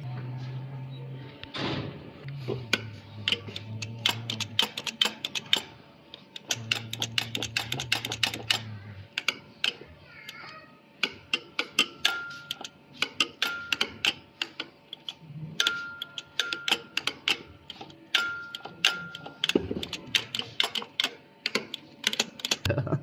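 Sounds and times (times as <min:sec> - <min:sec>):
low hum: 0:00.0 - 0:04.6
quick irregular clicks: 0:02.8 - 0:09.8, 0:11.0 - 0:22.7.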